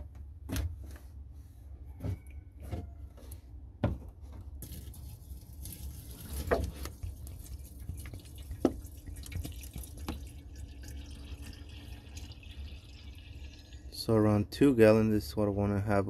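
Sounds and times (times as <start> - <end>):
water pouring from a jug: 4.6 - 14.1.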